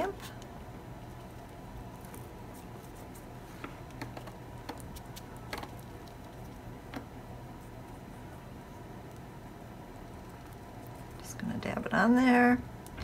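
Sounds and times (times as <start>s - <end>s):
low steady hum: 0.0s - 13.0s
paintbrush tapping and clicking: 3.8s - 7.1s.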